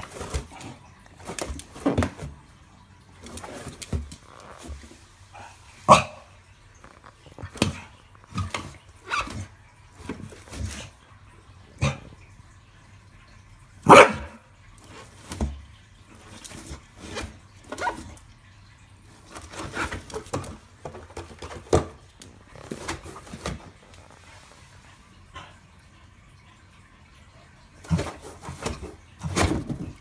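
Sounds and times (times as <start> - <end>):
dog barking: 5.9 - 6.3, 13.8 - 14.4.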